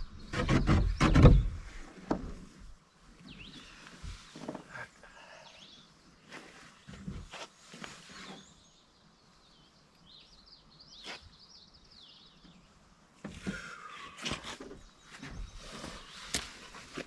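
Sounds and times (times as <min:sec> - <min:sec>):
songbird twittering: 0:03.2 - 0:03.9.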